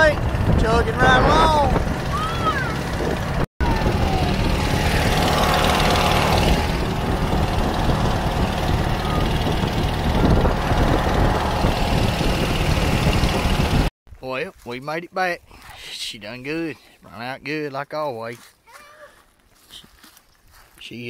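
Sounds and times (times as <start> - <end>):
boat engine running: 0.0 - 13.9
wind and water rushing: 0.0 - 13.9.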